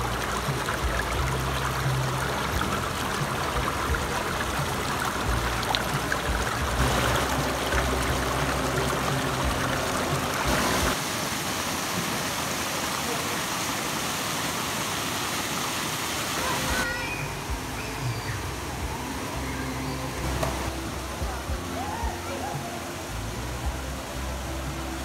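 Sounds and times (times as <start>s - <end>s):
low rumble: 0.0s - 11.0s
stream rushing over rocks: 0.0s - 25.0s.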